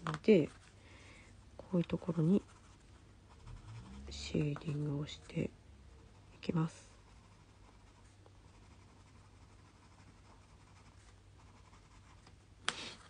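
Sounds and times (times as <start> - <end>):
pencil scratching on paper: 2.0 - 5.1, 6.6 - 12.2.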